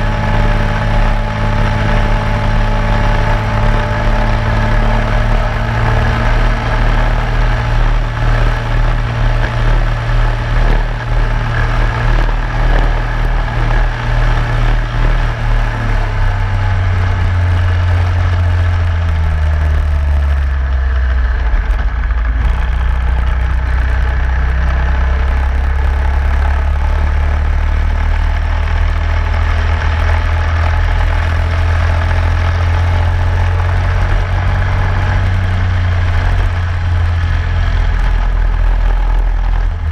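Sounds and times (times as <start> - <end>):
kart engine running hard: 0.0 - 39.9.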